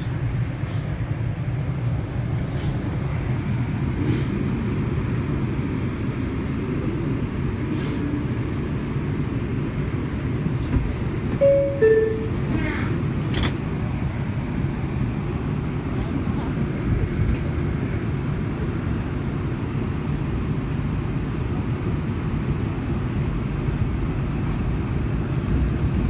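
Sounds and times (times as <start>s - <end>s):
subway train rumble: 0.0s - 26.0s
two-note falling chime: 11.4s - 12.4s.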